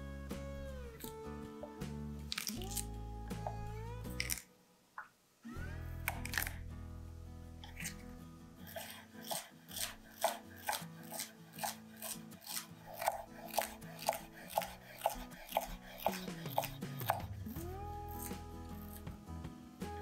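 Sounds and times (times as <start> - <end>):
soft background music: 0.0 - 4.7, 5.5 - 20.0
knife chopping on cutting board: 8.7 - 17.6.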